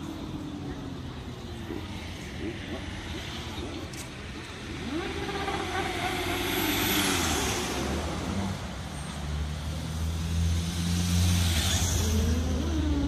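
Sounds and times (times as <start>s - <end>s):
motorcycle passing: 1.5s - 13.0s
engine revving: 1.6s - 8.8s
car driving past: 4.6s - 13.0s.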